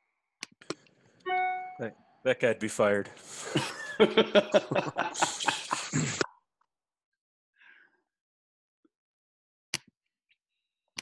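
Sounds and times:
men laughing: 3.3 - 6.2.

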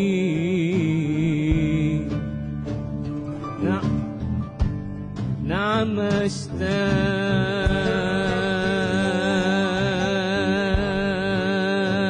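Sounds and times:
band playing keyboard and drums: 2.9 - 8.9
drum hits: 3.8 - 5.5, 6.1 - 8.5, 10.7 - 11.3.

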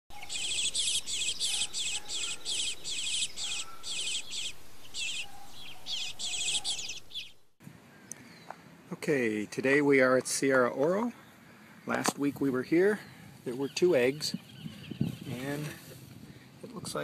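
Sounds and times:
fledgling begging chirps: 0.1 - 7.6, 13.0 - 15.6.

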